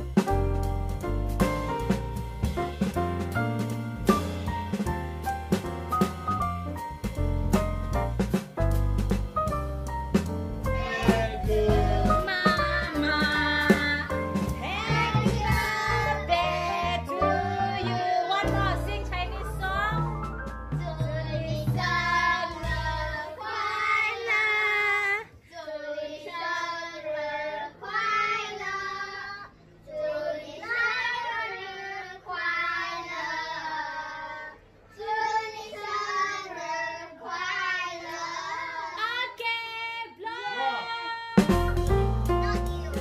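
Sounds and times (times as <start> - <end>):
children singing: 10.6 - 18.5, 20.8 - 39.0.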